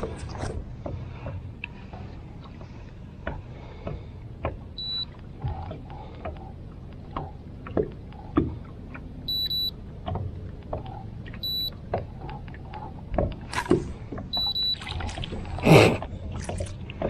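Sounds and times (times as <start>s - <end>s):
short electronic beeps: 4.8s - 5.1s, 9.3s - 9.7s, 11.4s - 11.7s, 14.3s - 14.9s.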